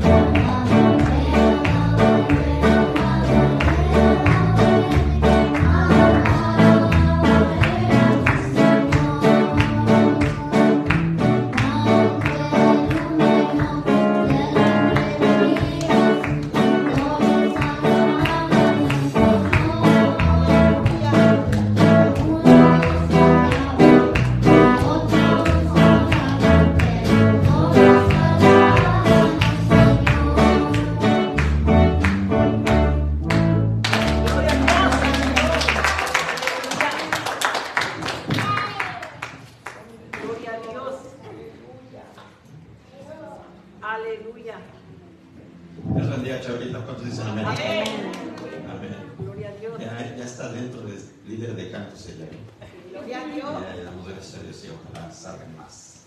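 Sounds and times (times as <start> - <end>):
girl singing into microphone: 0.0 - 31.6
instrumental backing music with beat: 0.0 - 34.5.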